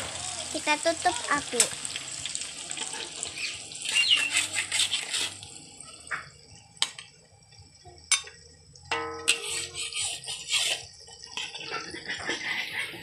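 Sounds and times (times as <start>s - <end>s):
metal spatula scraping in wok: 3.8s - 5.5s, 8.9s - 13.0s
spatula clinking on ceramic plate: 8.9s - 9.9s.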